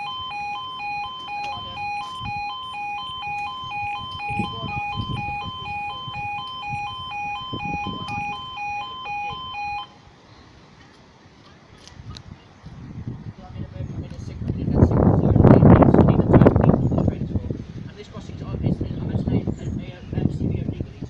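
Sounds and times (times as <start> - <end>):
wind rumbling on microphone: 0.0 - 9.8, 11.6 - 21.0
level crossing two-tone alarm: 0.0 - 10.0.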